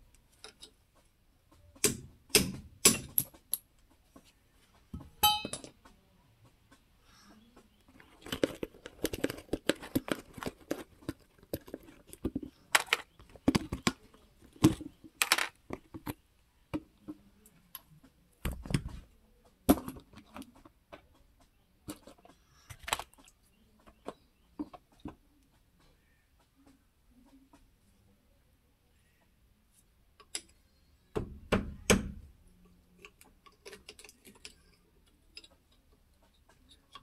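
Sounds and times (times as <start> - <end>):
metallic clinks and knocks of tools: 5.2 - 5.8.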